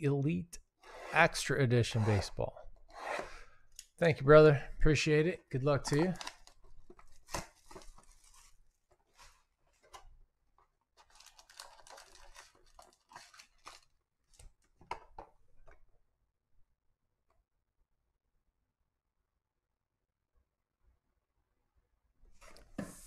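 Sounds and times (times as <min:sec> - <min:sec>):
plastic shrink-wrap tearing: 0:06.0 - 0:06.6, 0:11.0 - 0:13.9.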